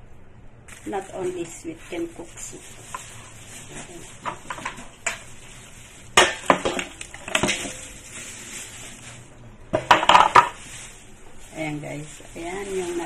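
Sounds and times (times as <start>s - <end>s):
knocks and clatters on metal bowl: 9.8s - 10.6s.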